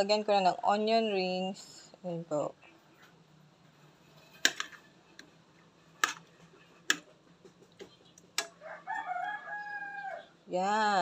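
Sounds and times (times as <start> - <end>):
rooster calling: 8.4 - 10.4.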